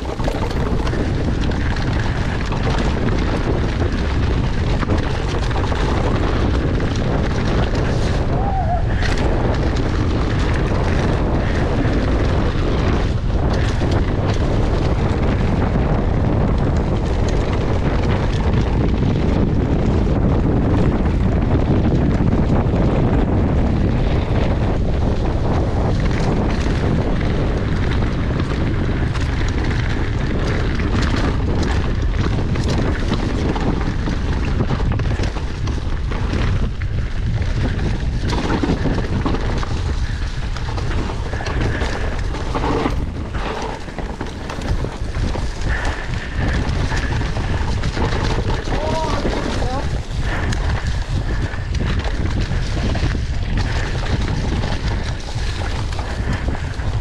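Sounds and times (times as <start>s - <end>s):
bike knocks and rattles: 0.0s - 57.0s
bike tyres rumbling on dirt: 0.0s - 57.0s
wind buffeting microphone: 0.0s - 57.0s.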